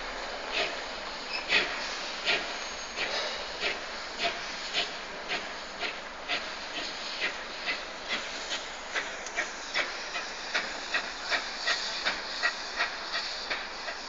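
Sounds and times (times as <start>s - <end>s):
steam hissing: 0.0s - 14.0s
steam locomotive exhaust beats: 0.0s - 14.0s.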